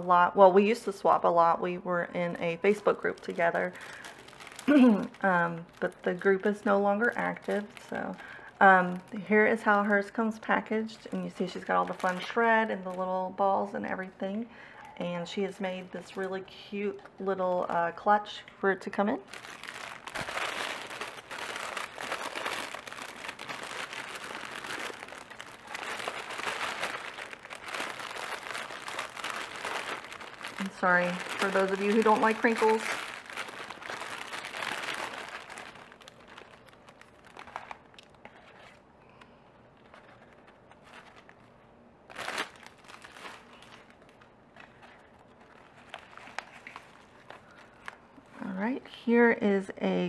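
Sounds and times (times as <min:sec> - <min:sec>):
packaging paper crinkling: 0:02.6 - 0:09.8, 0:11.2 - 0:13.2, 0:19.2 - 0:48.3.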